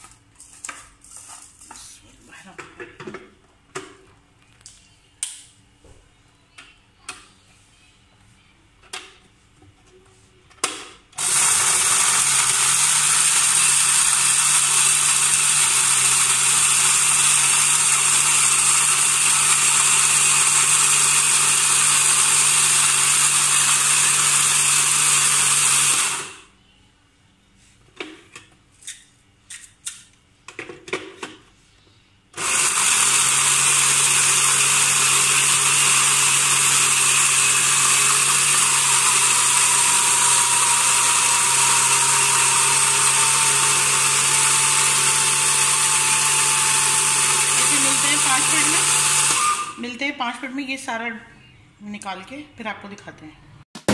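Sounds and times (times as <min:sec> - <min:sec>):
blender grinding spices: 0:11.2 - 0:26.4, 0:32.4 - 0:49.8.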